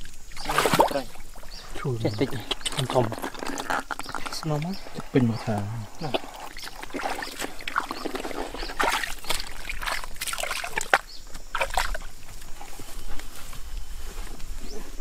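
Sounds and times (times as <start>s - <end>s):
wet sloshing: 0.0s - 12.2s
footsteps squelching in mud: 0.3s - 13.7s.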